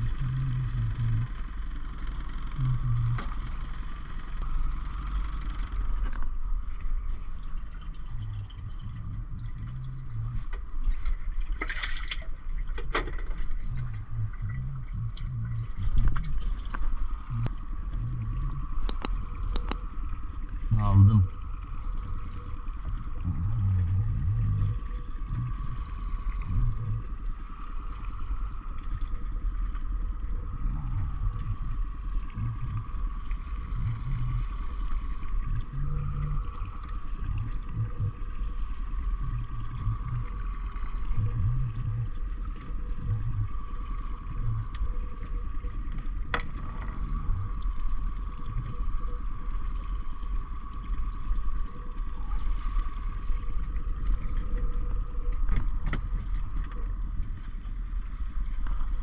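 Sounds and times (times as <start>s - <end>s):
sharp click: 18.8s - 19.8s.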